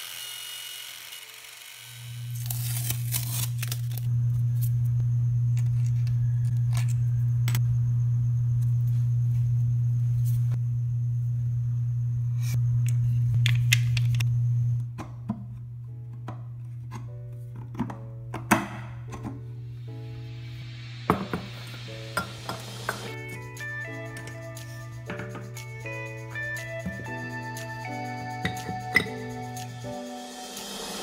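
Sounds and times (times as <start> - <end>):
small electric motor humming: 0.0 - 7.6
background music: 15.4 - 31.0.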